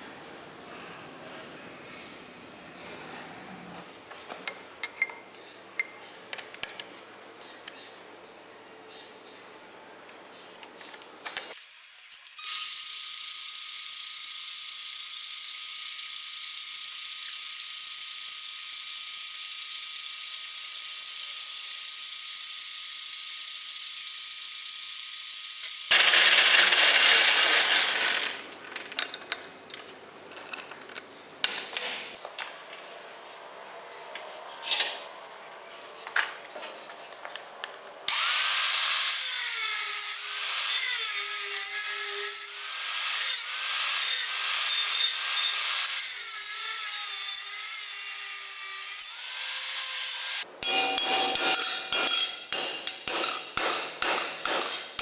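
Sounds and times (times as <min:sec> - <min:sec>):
angle grinder cutting steel: 0:25.5 - 0:28.4, 0:38.1 - 0:55.0
hole saw cutting steel: 0:38.1 - 0:55.0.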